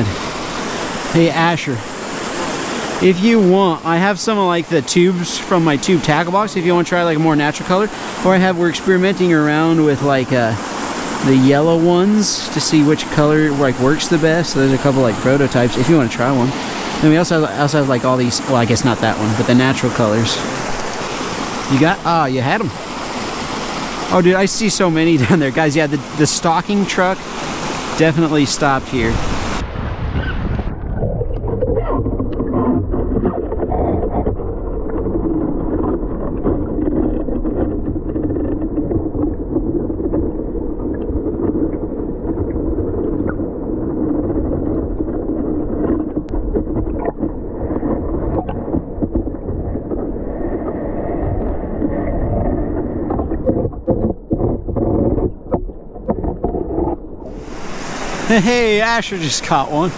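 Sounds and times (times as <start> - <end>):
muffled stream water rushing: 0.0 - 59.9.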